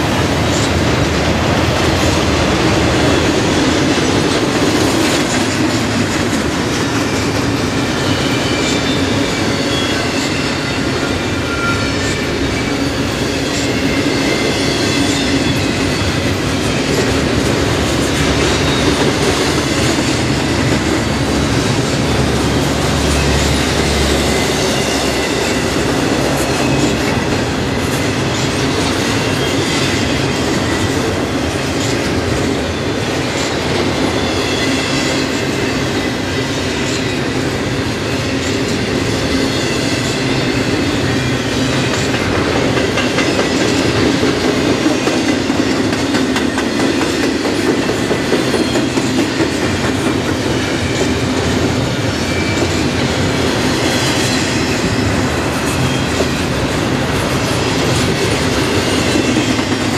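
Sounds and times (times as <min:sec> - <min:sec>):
freight train wheels rumbling on rail: 0:00.0 - 0:59.9.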